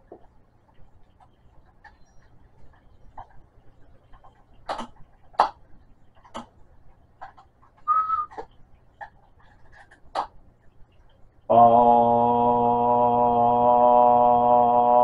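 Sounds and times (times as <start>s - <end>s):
short whistle-like tone: 7.9s - 8.4s.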